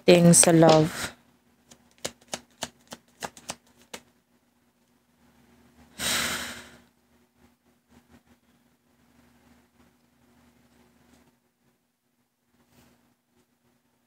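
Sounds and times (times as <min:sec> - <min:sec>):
cards being shuffled: 0:00.4 - 0:01.0, 0:01.7 - 0:04.1
breath close to microphone: 0:05.9 - 0:06.9.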